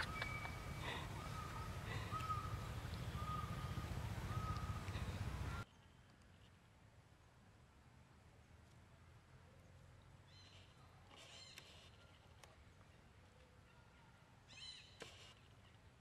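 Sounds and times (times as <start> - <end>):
high-pitched chirping animal calls: 0.0 - 5.6.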